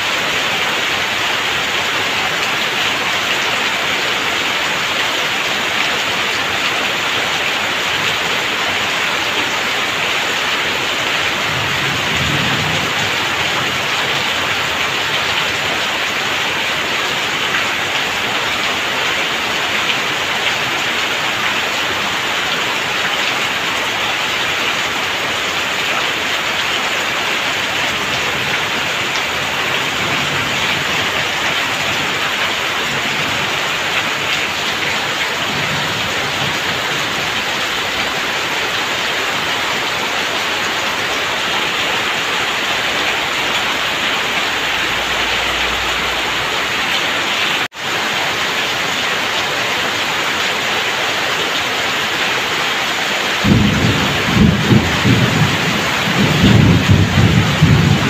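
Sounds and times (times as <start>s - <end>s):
heavy rain falling: 0.0s - 58.0s.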